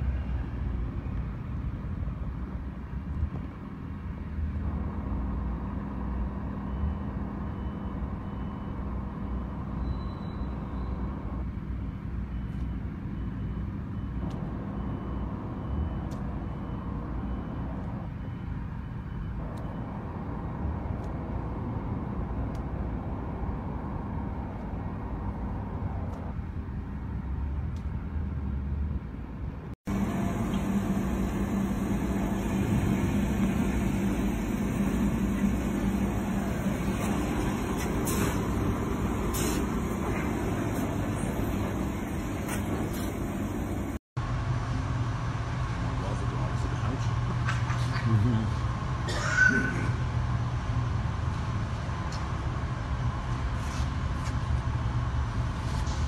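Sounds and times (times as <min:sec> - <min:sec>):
concrete mixer truck engine running: 0:29.9 - 0:44.0.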